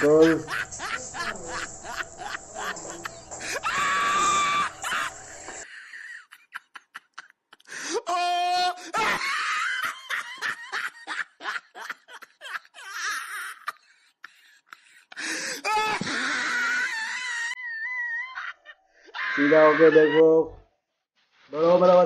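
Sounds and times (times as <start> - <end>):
people laughing: 0.0 - 18.6
high-pitched screams: 1.5 - 5.6, 15.7 - 18.5, 19.1 - 20.2.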